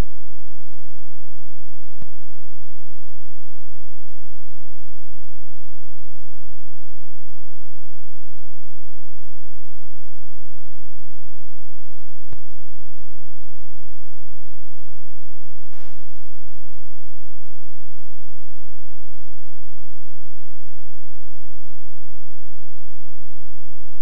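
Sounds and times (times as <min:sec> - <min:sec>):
faint click: 0:02.0 - 0:02.2, 0:12.3 - 0:12.5, 0:15.7 - 0:16.9.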